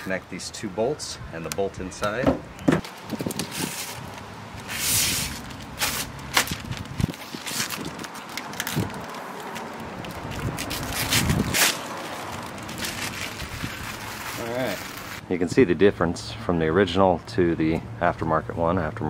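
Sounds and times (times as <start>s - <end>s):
short rustling scrapes: 3.4s - 8.0s.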